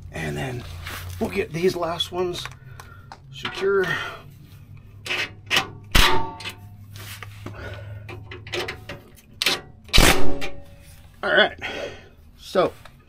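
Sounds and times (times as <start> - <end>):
metal tools clanking and scraping: 3.4 - 4.0, 8.0 - 9.7
sharp metal knocks: 5.1 - 6.6, 8.1 - 10.7.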